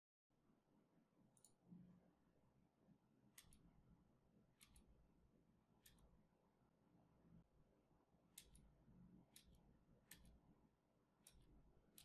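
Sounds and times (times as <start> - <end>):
computer mouse clicks: 3.3 - 3.7, 4.6 - 5.0, 5.8 - 6.2, 8.3 - 10.5, 11.2 - 12.0.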